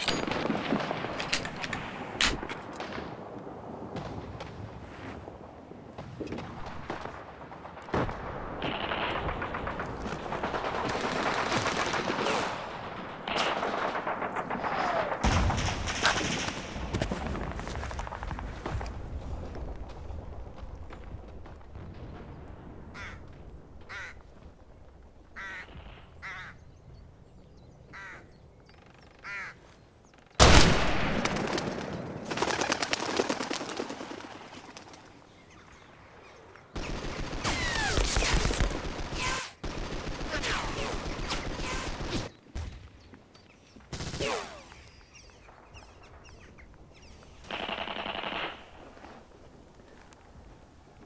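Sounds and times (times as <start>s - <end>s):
birds chirping: 20.6s - 30.4s, 34.6s - 37.0s, 42.1s - 47.8s.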